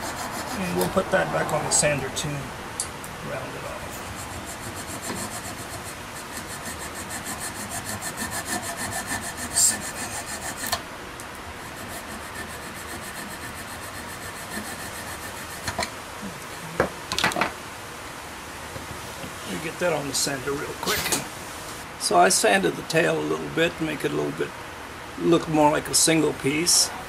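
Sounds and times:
hand saw cutting wood: 0:00.0 - 0:01.0, 0:03.9 - 0:10.8, 0:11.7 - 0:15.8.

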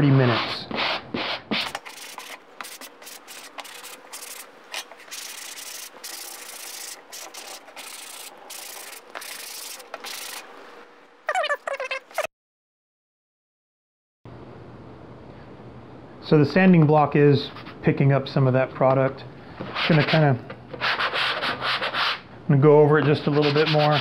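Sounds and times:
sanding block scratching plastic: 0:00.2 - 0:10.5, 0:20.8 - 0:22.2, 0:23.0 - 0:24.0.

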